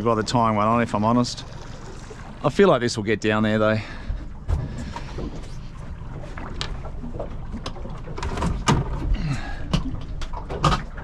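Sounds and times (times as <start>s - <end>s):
outboard motor idling: 0.0s - 11.0s.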